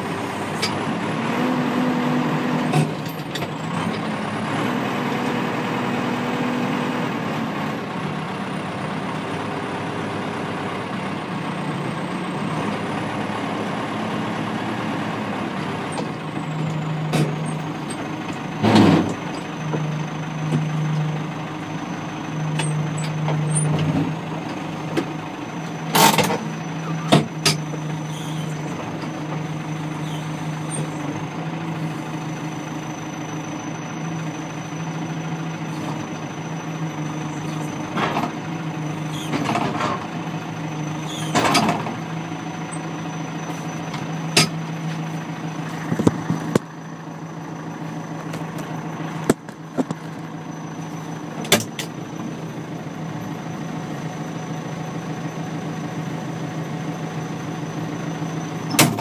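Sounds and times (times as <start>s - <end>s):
diesel engine running: 0.0s - 59.0s
backhoe arm clunks and knocks: 15.6s - 19.9s, 25.9s - 27.9s, 39.2s - 40.1s, 41.1s - 42.0s, 45.8s - 46.8s, 51.4s - 52.0s, 58.6s - 59.0s.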